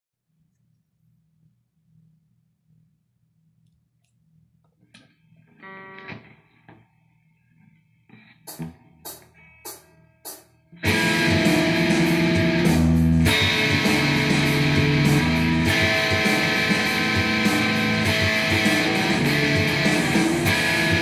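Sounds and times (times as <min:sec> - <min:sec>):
loud electric guitar: 0:05.6 - 0:06.4, 0:10.8 - 0:21.0
drums: 0:08.4 - 0:21.0.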